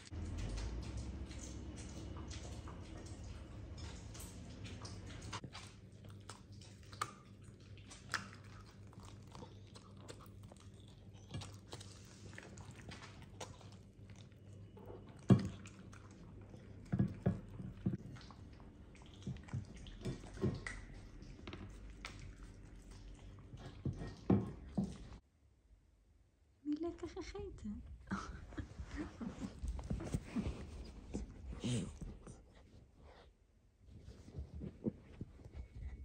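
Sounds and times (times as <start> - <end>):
dog chewing and crunching bone: 0.0 - 25.2, 29.3 - 32.8
faint low hum: 0.0 - 36.0.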